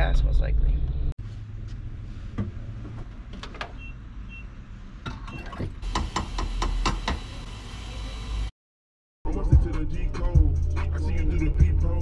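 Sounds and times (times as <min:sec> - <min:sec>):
fuel pump beeping: 0:03.6 - 0:04.6.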